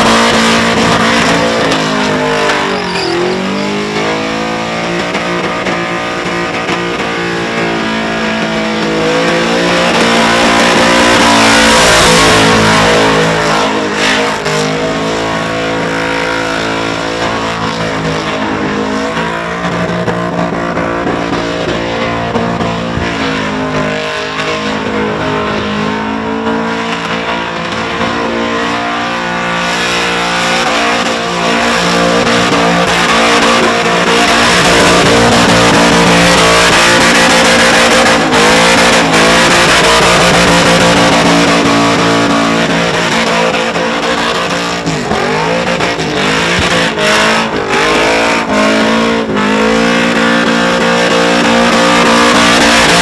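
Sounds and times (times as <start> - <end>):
car engine revving high: 0.0 - 53.0
tyres spinning and squealing: 0.0 - 53.0.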